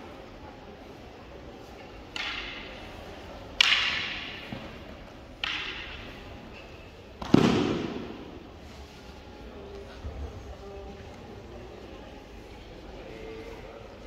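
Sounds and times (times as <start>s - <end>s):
wooden weapons clacking: 1.8s - 2.9s, 3.5s - 7.5s.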